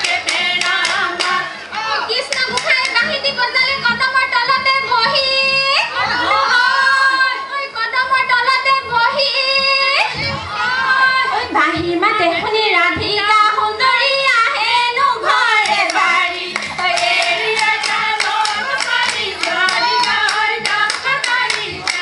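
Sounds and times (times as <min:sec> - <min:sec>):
hand claps: 0:00.0 - 0:01.5, 0:02.2 - 0:03.0, 0:15.6 - 0:22.0
women singing together: 0:00.0 - 0:22.0.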